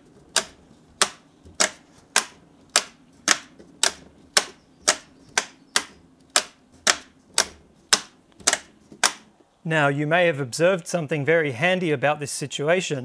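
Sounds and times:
metal toggle switches clicking: 0:00.3 - 0:09.2.

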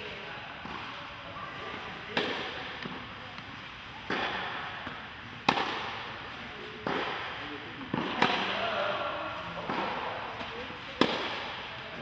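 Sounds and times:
tennis ball impacts echoing: 0:02.1 - 0:03.4, 0:04.0 - 0:11.7.

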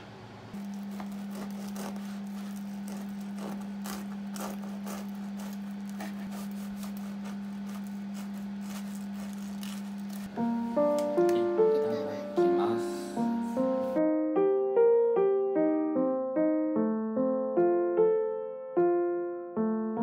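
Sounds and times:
steady low hum: 0:00.0 - 0:14.0
knife sawing crusty bread: 0:00.6 - 0:10.4.

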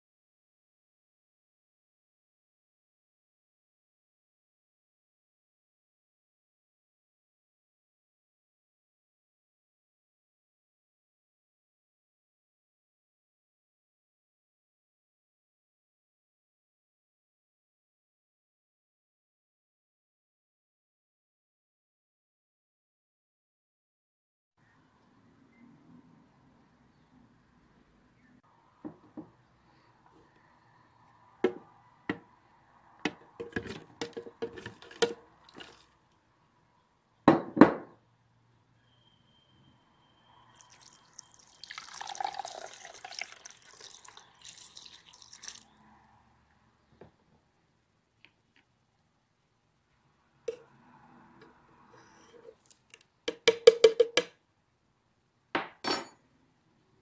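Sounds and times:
utensil tapping blender jar: 0:33.1 - 0:35.8.

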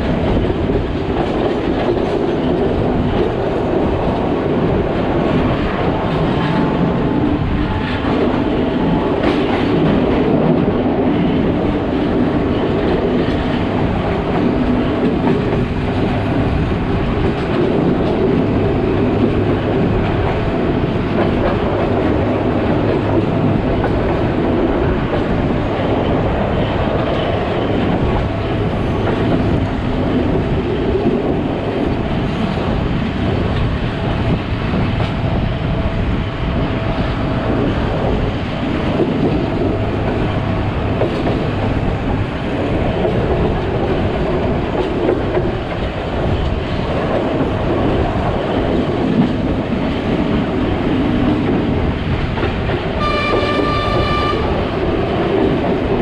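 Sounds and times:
train wheels rumbling on rails: 0:00.0 - 0:56.0
train horn blast: 0:53.0 - 0:54.7.

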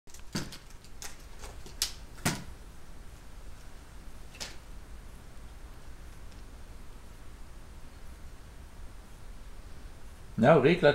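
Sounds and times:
sharp irregular clicks and knocks: 0:00.1 - 0:02.5.

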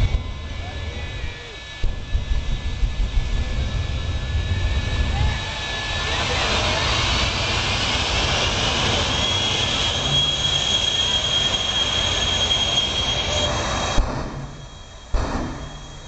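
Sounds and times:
jet engines roaring and whistling: 0:00.0 - 0:16.0
sharp bang: 0:13.8 - 0:16.0.

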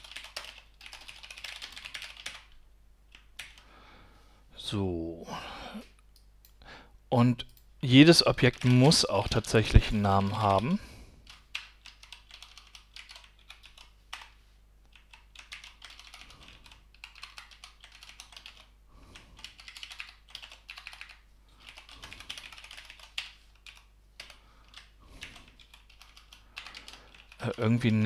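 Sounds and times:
typing on computer keyboard: 0:00.0 - 0:03.6, 0:08.4 - 0:09.5, 0:11.2 - 0:27.6.

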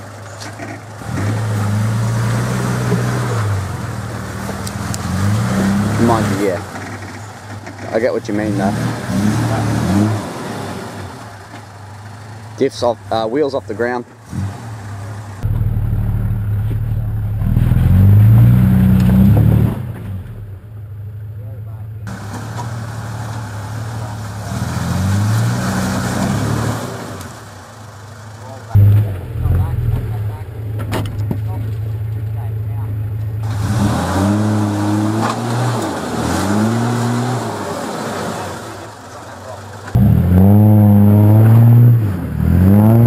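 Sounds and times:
truck engine revving: 0:00.0 - 0:43.0
engine revving hard: 0:04.7 - 0:06.6, 0:08.3 - 0:11.2, 0:23.9 - 0:27.4, 0:33.4 - 0:38.9, 0:39.9 - 0:43.0.

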